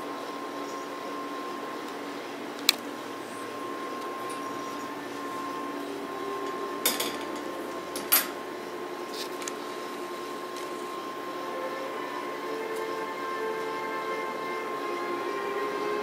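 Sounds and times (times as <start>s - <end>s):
wire cage metallic knocks: 6.8s - 8.4s.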